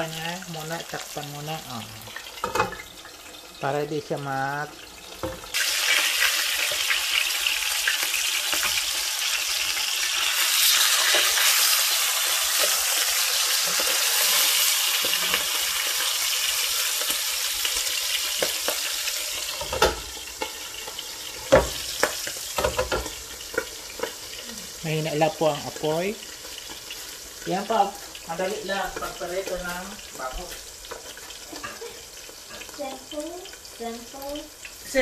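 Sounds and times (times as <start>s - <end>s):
fish sizzling in hot oil: 0.0s - 35.0s.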